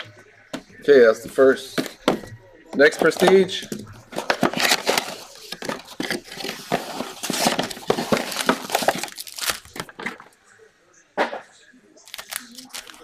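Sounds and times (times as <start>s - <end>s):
cardboard box rustling: 2.8s - 10.2s
plastic wrap crinkling and tearing: 4.1s - 10.2s, 12.0s - 13.0s.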